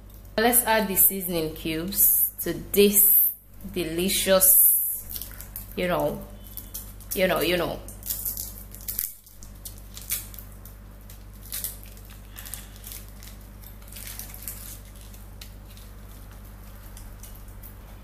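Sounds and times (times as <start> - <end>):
steady low hum: 0.0 - 18.0
wrappers crinkling: 4.2 - 18.0
soft crackles and rustles: 8.0 - 18.0.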